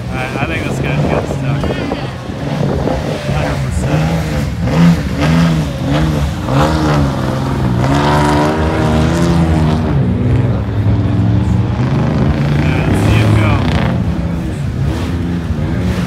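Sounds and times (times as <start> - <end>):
pickup truck engine revving: 0.0 - 16.0.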